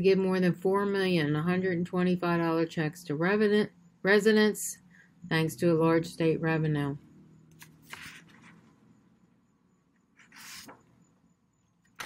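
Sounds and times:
faint breaths: 0:04.8 - 0:05.3.

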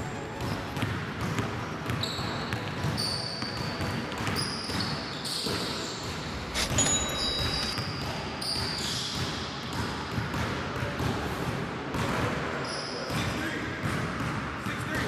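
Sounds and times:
sneakers squeaking: 0:00.2 - 0:09.8
basketball dribbling: 0:00.4 - 0:04.9.

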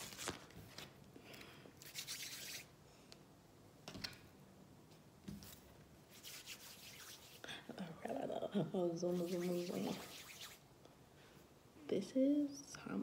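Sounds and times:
rustling of things on a tabletop: 0:04.9 - 0:05.9.

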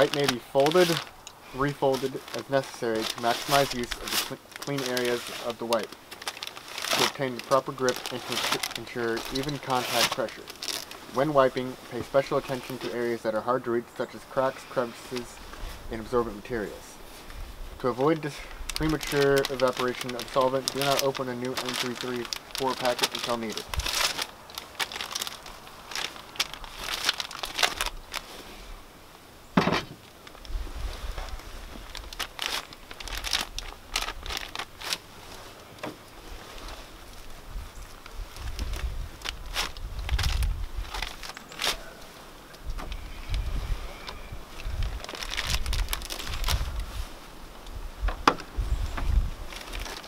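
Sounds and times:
protective suit rustling: 0:00.0 - 0:13.2, 0:14.6 - 0:28.6, 0:29.8 - 0:50.0
thud: 0:29.6 - 0:30.0.

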